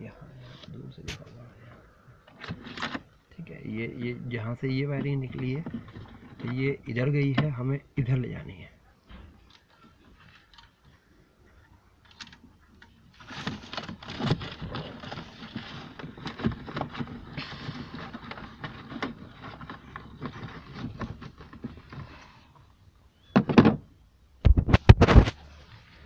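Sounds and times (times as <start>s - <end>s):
wires rustling and scraping: 0.1s - 8.2s, 9.1s - 22.8s.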